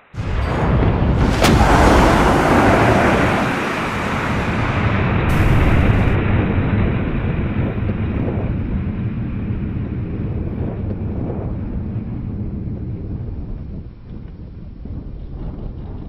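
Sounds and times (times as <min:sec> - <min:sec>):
rocket launch roar: 0:00.1 - 0:12.3.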